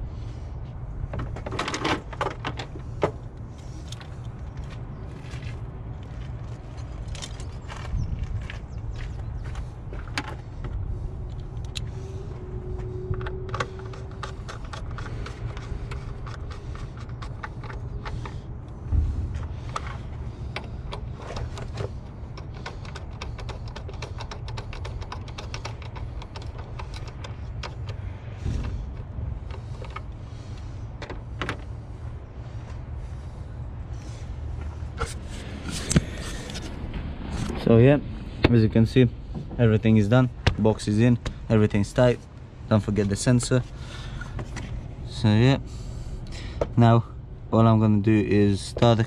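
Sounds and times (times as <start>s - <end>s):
steady low rumble: 0.0s - 49.0s
loud thump: 18.9s - 19.7s.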